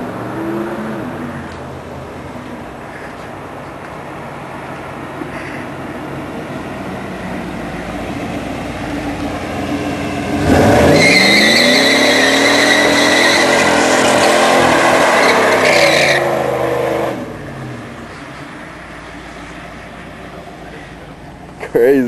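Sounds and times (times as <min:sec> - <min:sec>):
car engine revving: 0:06.2 - 0:21.7
tire squeal: 0:10.0 - 0:17.4.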